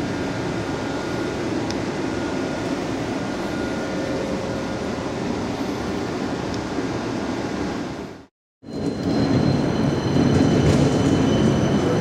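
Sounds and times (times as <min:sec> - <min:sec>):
tram interior hum and rush: 0:00.0 - 0:12.0.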